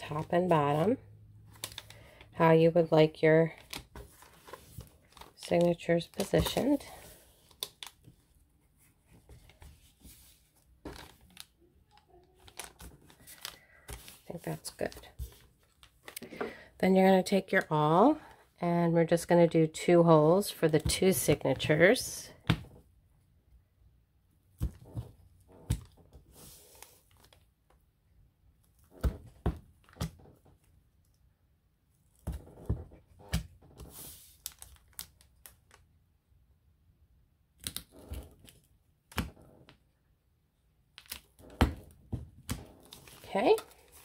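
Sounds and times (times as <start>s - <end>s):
paper crinkling: 9.2s - 16.2s.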